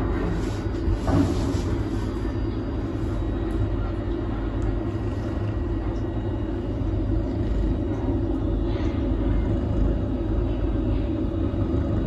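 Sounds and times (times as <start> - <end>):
wild cat purring: 0.0 - 12.0.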